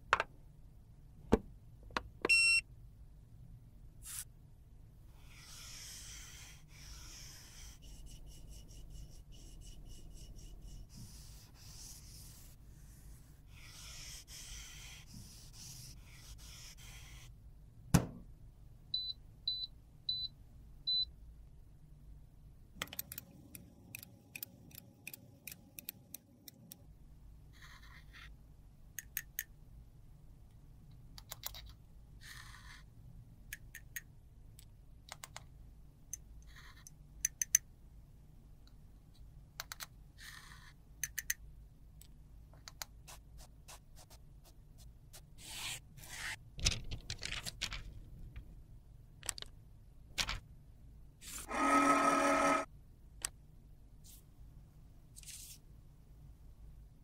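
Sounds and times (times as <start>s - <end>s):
powder being rubbed and scraped: 5.2s - 17.3s, 43.0s - 46.4s.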